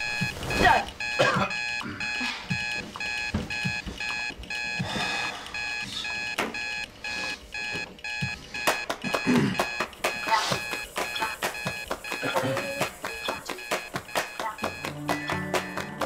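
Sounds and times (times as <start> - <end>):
alarm clock beeping: 0.0 - 16.0.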